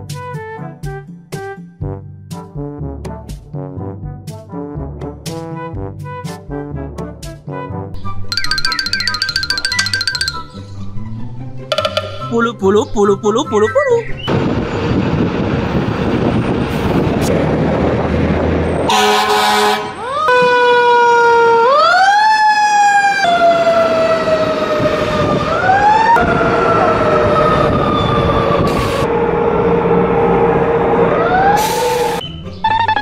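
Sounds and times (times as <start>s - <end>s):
truck engine rumble: 11.0s - 18.9s
air horn blast: 18.9s - 20.0s
wailing siren: 18.9s - 32.2s.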